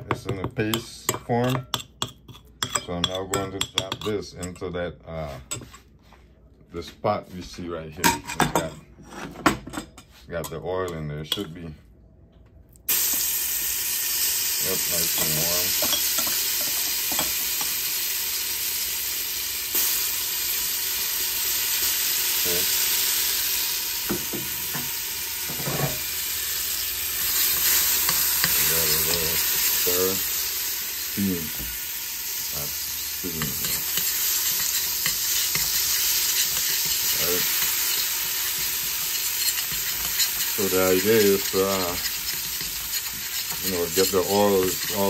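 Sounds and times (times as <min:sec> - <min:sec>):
pot being stirred: 0:00.0 - 0:04.7, 0:25.5 - 0:45.0
oil sizzling in a pot: 0:12.9 - 0:45.0.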